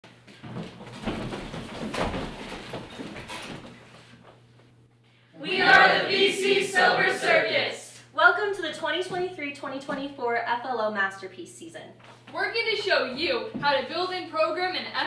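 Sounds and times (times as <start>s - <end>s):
people rustling and shuffling: 0.1s - 4.8s, 12.0s - 12.9s.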